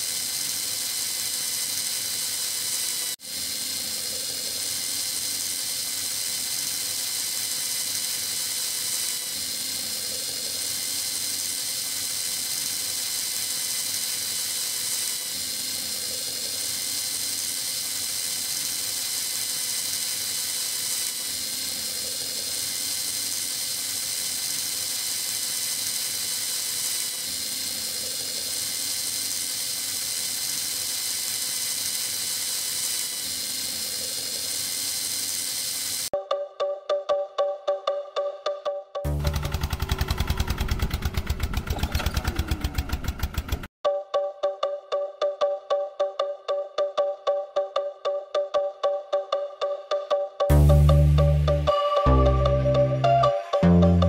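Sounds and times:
small electric motor whirring: 0.0s - 36.2s, 39.0s - 43.8s.

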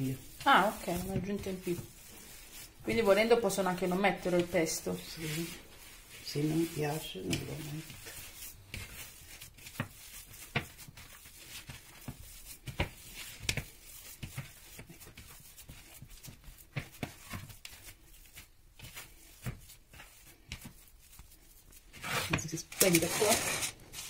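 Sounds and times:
hands squishing minced meat: 0.0s - 23.0s.

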